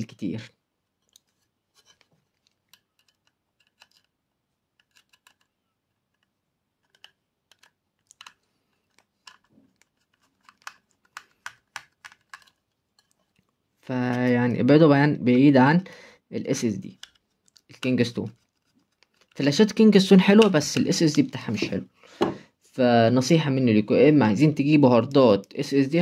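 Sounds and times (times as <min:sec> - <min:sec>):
small clicks of handling parts: 0:00.9 - 0:14.3, 0:16.9 - 0:19.6.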